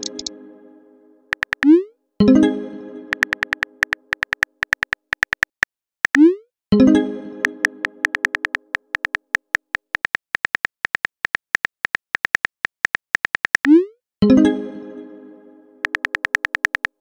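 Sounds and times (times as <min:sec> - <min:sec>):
phone keyboard clicks: 0:00.0 - 0:00.3, 0:01.3 - 0:01.7, 0:03.1 - 0:06.2, 0:07.4 - 0:13.7, 0:15.8 - 0:17.0.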